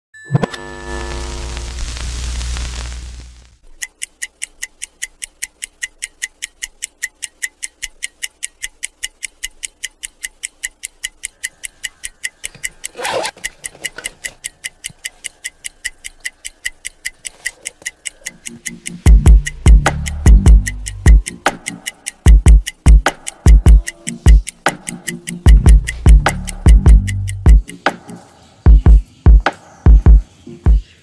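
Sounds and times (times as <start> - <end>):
background music with ticking: 3.6 - 31.0.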